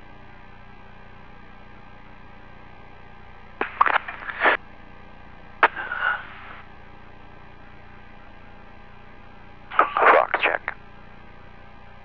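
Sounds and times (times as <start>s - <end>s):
radio click: 3.6s - 4.6s, 5.6s - 6.6s, 9.7s - 10.8s
radio static crackling: 3.6s - 4.6s, 5.6s - 6.7s, 9.7s - 10.8s.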